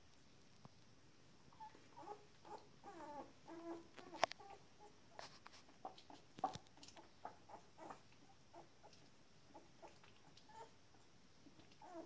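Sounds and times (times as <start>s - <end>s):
puppies squeaking: 1.6s - 4.9s, 9.6s - 10.8s, 11.8s - 12.0s.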